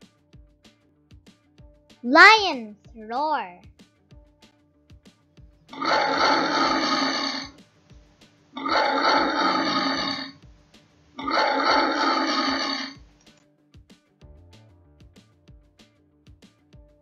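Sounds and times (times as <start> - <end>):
lion roaring: 5.8 - 7.5, 8.6 - 10.3, 11.2 - 13.0
faint background music: 7.5 - 9.3, 10.3 - 11.6, 13.0 - 17.0.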